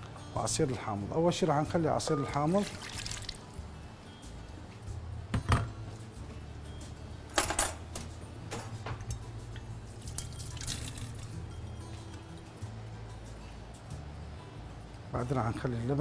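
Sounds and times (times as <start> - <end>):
liquid pouring and splashing: 2.4 - 3.6, 10.0 - 11.3.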